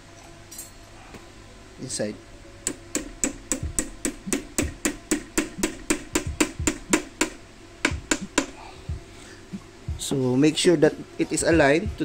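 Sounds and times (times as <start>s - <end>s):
hammer tapping metal pin: 2.6s - 8.6s.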